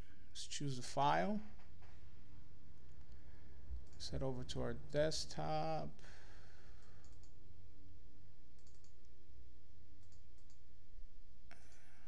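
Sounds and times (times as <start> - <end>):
low electrical hum: 0.0 - 12.0
computer mouse clicks: 6.8 - 7.4, 8.6 - 9.1, 10.0 - 10.6.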